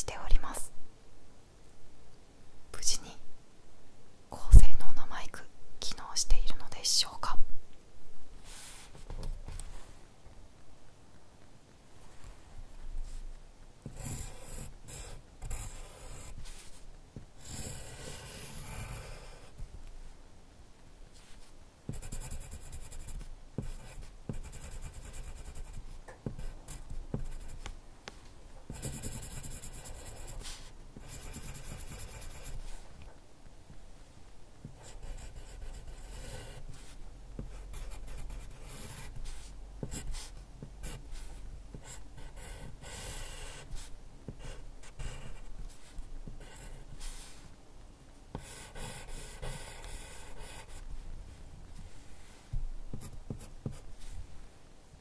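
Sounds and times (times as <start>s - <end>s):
pencil scratching on paper: 13.8s - 16.8s, 17.4s - 19.6s, 21.9s - 27.7s, 28.7s - 32.8s, 34.7s - 47.6s, 48.3s - 50.8s, 52.5s - 54.2s.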